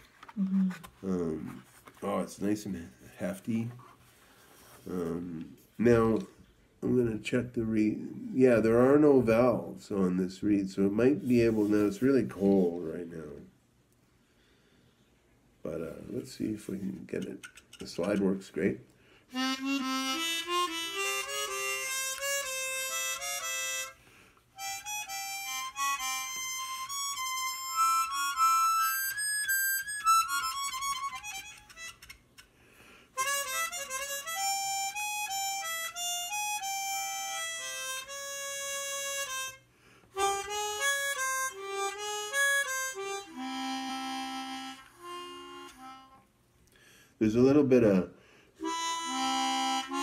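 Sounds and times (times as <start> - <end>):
harmonica playing single notes: 19.3 - 32.5, 33.1 - 46.3, 48.6 - 50.0.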